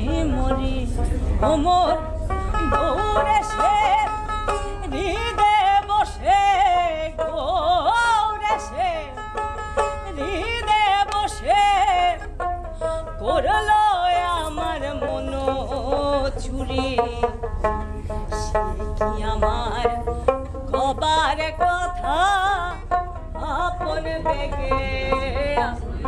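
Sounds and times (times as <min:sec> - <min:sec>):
woman singing folk song: 0:00.0 - 0:26.0.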